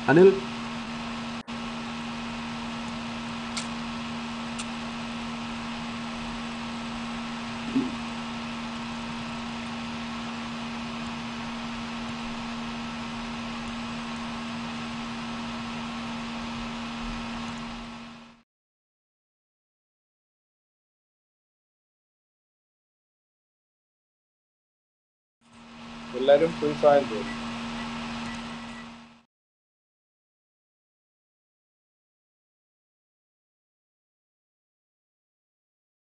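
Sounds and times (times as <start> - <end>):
low hum: 0.0 - 18.4, 25.5 - 29.2
telephone line hiss: 25.8 - 29.2.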